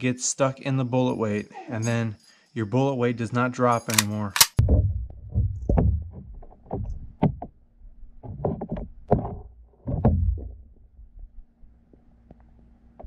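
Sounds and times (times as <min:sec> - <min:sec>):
muffled underwater knocks and thumps: 0:04.6 - 0:11.4.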